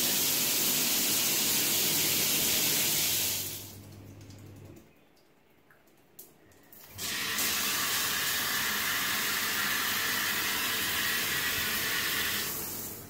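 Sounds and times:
shower water spraying: 0.0 - 3.8, 6.8 - 13.0.

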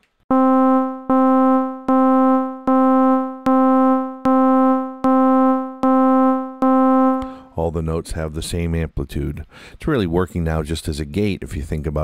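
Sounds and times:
synthesizer repeating one note: 0.3 - 7.5.

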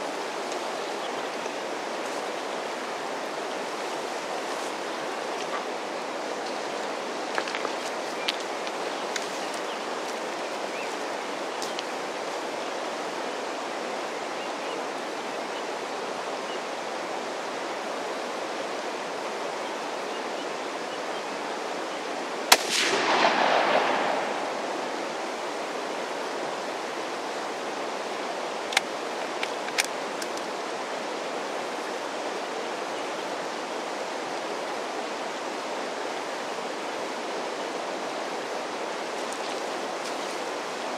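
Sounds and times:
creek rushing: 0.0 - 40.9
rifle shot: 22.5 - 25.0.

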